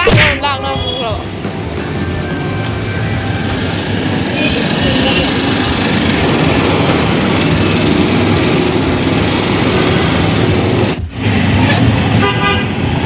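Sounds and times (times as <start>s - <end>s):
street traffic noise: 0.0s - 13.0s
small engines running: 3.3s - 11.0s.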